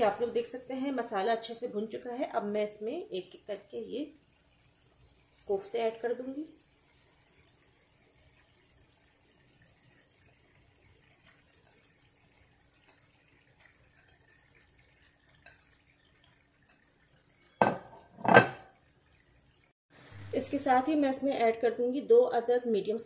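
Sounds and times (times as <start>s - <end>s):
faint small ticks: 9.9s - 17.6s
kitchenware clunks: 17.6s - 18.8s.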